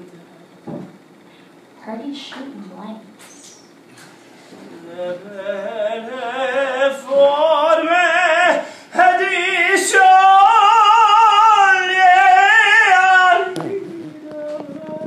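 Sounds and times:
woman singing wordless notes: 4.7s - 15.0s.

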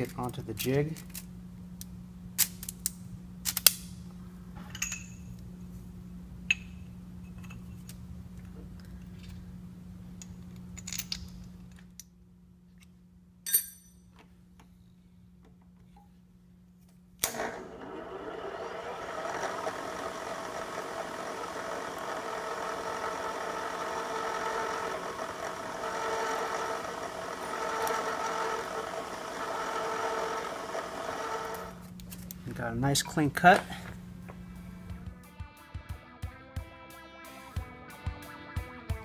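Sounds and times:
milling machine spindle whining: 17.3s - 31.8s.

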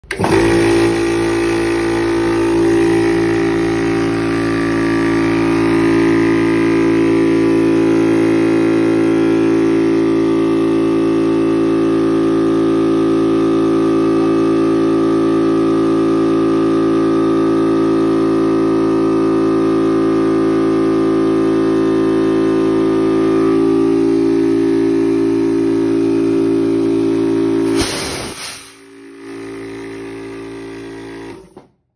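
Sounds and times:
air compressor humming: 0.0s - 31.7s
brief hiss: 27.7s - 28.9s.

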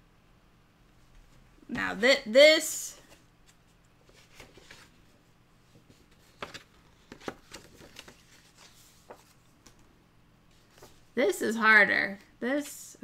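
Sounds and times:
cards rustling on a tabletop: 3.0s - 9.9s, 10.5s - 11.2s.

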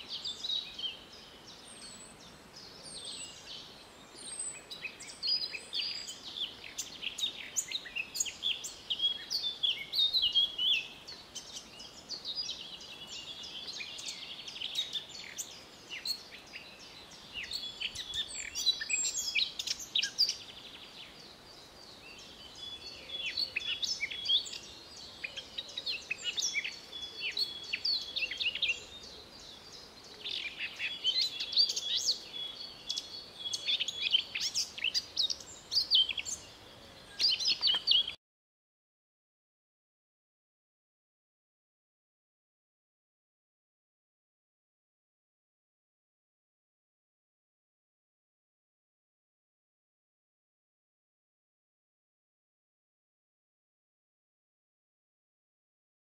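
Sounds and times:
songbirds singing: 0.0s - 38.2s.

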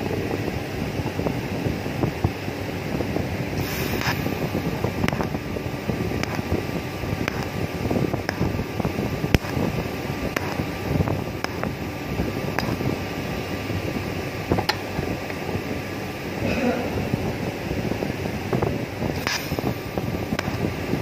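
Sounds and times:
welding arc crackling: 3.4s - 16.4s, 17.2s - 21.0s
sharp ticks: 5.0s - 5.4s, 6.2s - 6.6s, 7.2s - 7.6s, 8.2s - 8.6s, 9.3s - 9.7s, 10.3s - 10.7s, 11.4s - 11.8s.

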